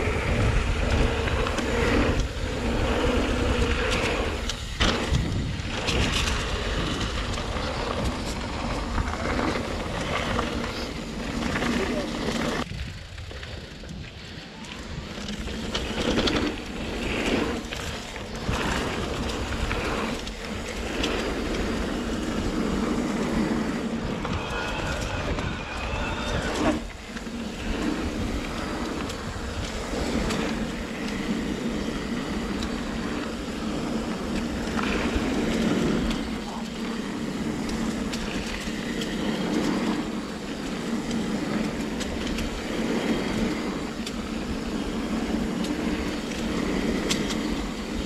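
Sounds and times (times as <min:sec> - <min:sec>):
bike clattering over bumps: 0:00.0 - 0:14.1
tyres rumbling over dirt: 0:00.0 - 0:48.0
wind rushing over microphone: 0:00.0 - 0:48.0.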